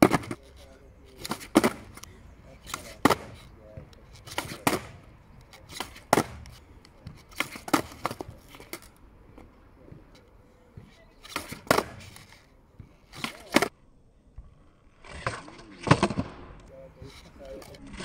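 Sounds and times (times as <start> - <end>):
skateboard clacking on asphalt: 0.0 - 13.8.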